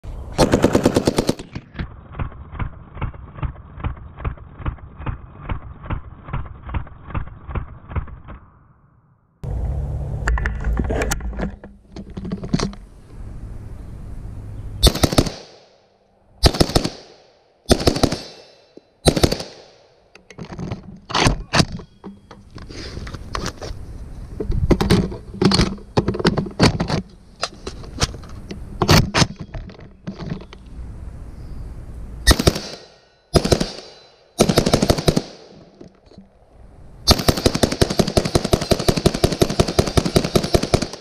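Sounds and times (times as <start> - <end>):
rifle shots with echo: 14.8 - 15.8, 16.4 - 19.9, 32.3 - 35.7, 37.1 - 41.0.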